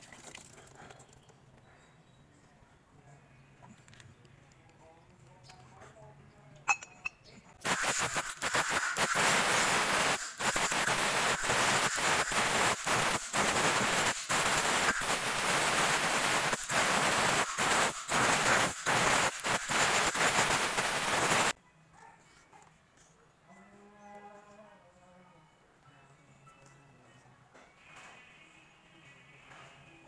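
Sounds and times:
compressed air blow gun hissing: 7.6 - 21.5.

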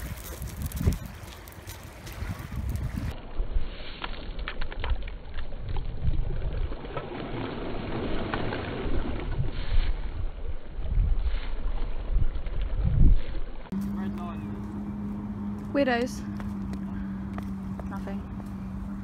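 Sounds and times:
wind buffeting microphone: 0.0 - 3.6, 8.9 - 19.0.

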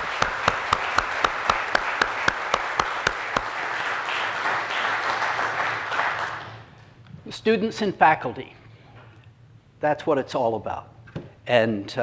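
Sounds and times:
audience applauding: 0.0 - 6.7
close sharp hand claps: 0.0 - 6.7.

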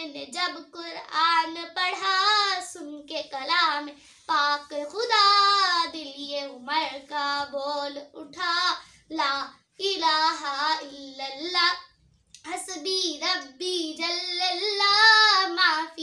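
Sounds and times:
girl singing devotional song: 0.0 - 16.0.

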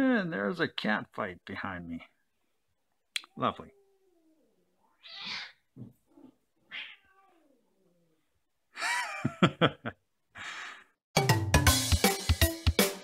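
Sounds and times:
cats yowling: 3.6 - 8.3
cat screeching: 4.0 - 8.1.

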